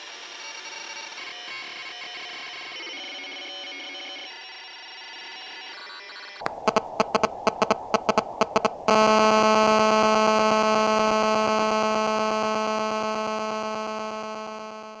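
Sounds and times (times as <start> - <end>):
long buzzing tone: 6.4 - 15.0
sharp electronic clicks: 6.4 - 15.0.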